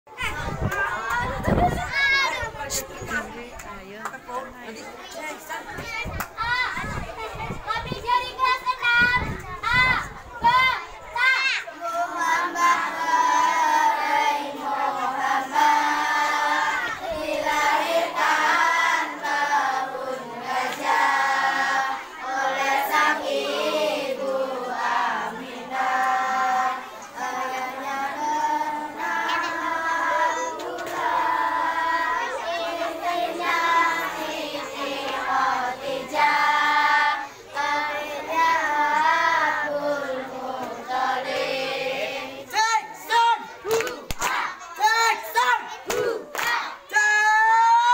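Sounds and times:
children singing together: 0:07.4 - 0:43.5.

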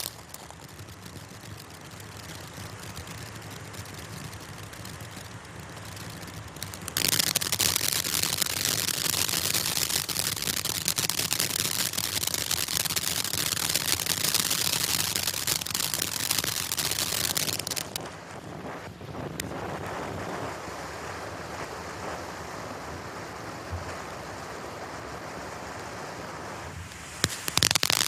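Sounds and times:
dense crackling pops: 0:00.0 - 0:20.6, 0:27.0 - 0:28.0
firework fountain hissing: 0:00.0 - 0:28.0.

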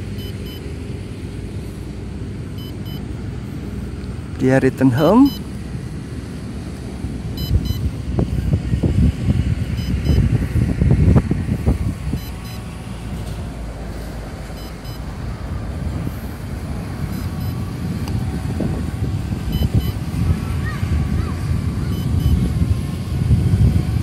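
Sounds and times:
electronic double beeps: 0:00.1 - 0:00.7, 0:02.6 - 0:03.6, 0:04.9 - 0:05.5, 0:07.4 - 0:08.0, 0:09.7 - 0:10.3, 0:12.1 - 0:12.7, 0:14.6 - 0:15.1, 0:17.1 - 0:17.7, 0:19.5 - 0:20.1, 0:21.8 - 0:22.5
wind buffeting microphone: 0:05.4 - 0:24.0.

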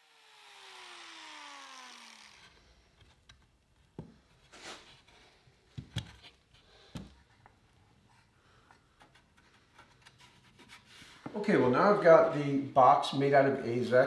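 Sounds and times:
power tool motor winding down: 0:00.0 - 0:02.8.

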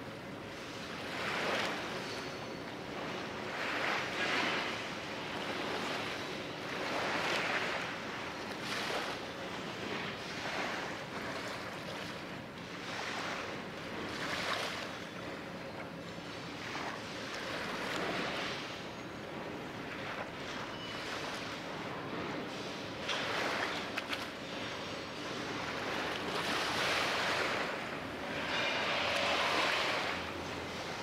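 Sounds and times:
small waves washing on shore: 0:00.0 - 0:31.0.

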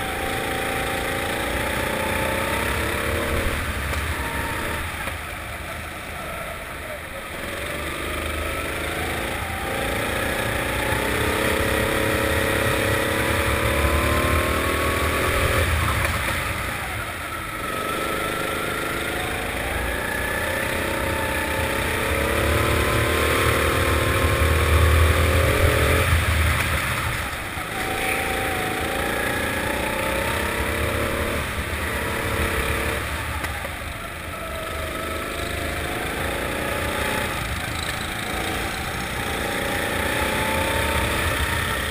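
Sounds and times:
kart engine revving: 0:00.0 - 0:41.9.

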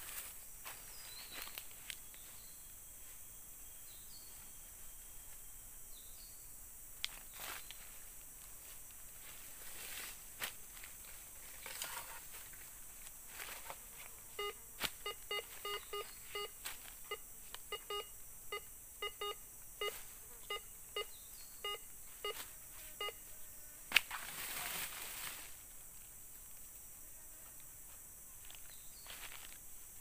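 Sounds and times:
metal detector beeping: 0:14.4 - 0:23.2.

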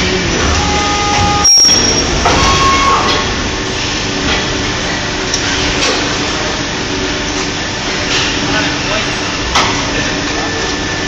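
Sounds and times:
machine clanks and knocks: 0:00.0 - 0:06.6
factory machine din: 0:00.0 - 0:11.0.

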